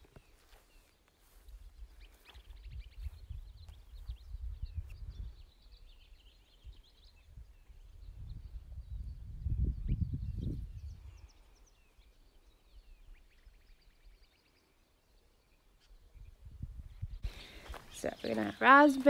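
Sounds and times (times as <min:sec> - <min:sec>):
songbirds chirping: 0:00.0 - 0:19.0
low rumble on microphone: 0:06.7 - 0:11.4.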